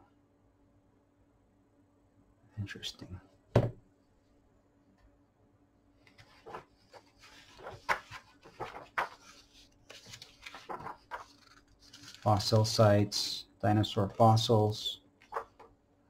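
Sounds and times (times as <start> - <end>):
paper page rustling: 6.1 - 12.8.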